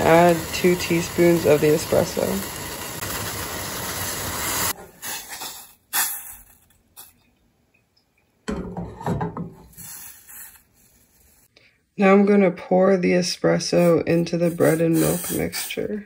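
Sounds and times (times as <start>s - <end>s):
water boiling in saucepan: 0.0s - 6.6s, 9.4s - 11.5s, 13.8s - 16.0s
spoon scraping a pan: 14.6s - 16.0s.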